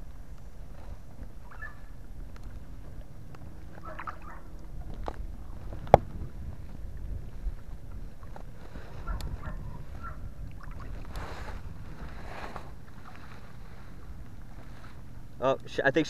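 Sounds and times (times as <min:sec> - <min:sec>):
water sloshing against hull: 0:00.0 - 0:15.7.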